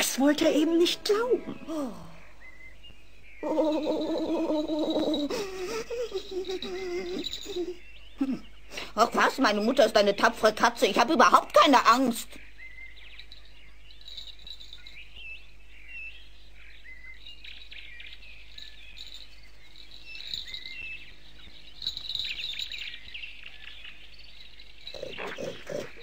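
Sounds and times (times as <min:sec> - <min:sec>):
low animal noises: 0:00.0 - 0:09.0, 0:18.5 - 0:26.0
small birds chirping: 0:00.0 - 0:26.0.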